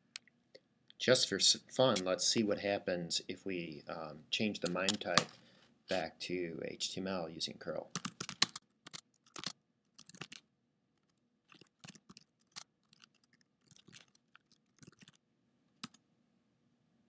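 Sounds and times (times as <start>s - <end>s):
keyboard typing: 7.9s - 10.4s, 11.5s - 15.2s.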